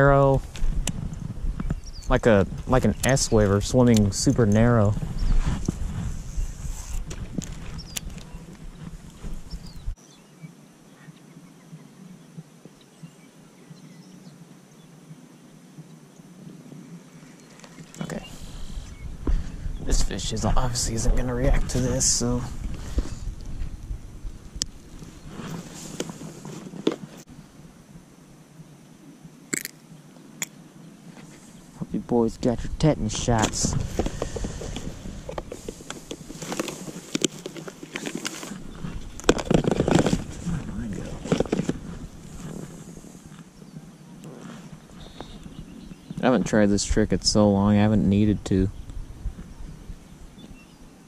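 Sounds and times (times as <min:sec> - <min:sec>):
wind buffeting microphone: 0:00.0 - 0:10.0, 0:18.0 - 0:26.9, 0:31.8 - 0:37.2, 0:38.5 - 0:50.8
faint outdoor ambience: 0:00.0 - 0:51.0
distant bird chirps: 0:01.1 - 0:02.2, 0:07.7 - 0:20.0, 0:43.4 - 0:46.4
rustling of soft plastic baits: 0:33.5 - 0:43.3.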